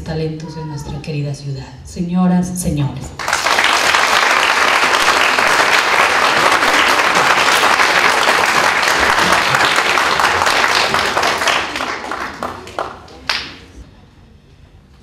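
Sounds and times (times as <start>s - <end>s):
audience applauding: 3.2s - 13.8s.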